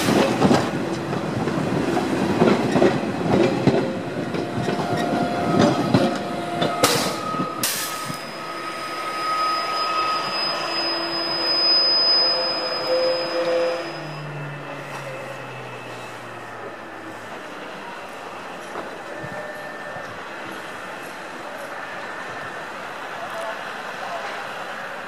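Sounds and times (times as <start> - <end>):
high wheel squeal: 4.5 - 23.0.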